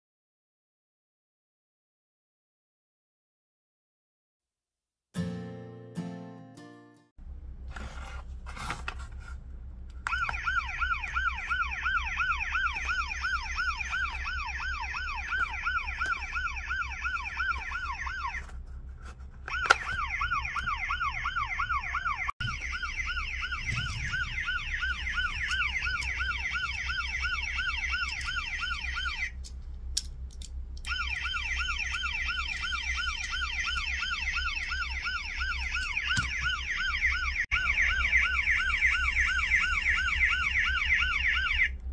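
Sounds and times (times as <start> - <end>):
toy electronic siren warbling: 10.1 - 18.5, 19.5 - 29.4, 30.8 - 41.7
toy handling clicks and knocks: 29.4 - 30.9.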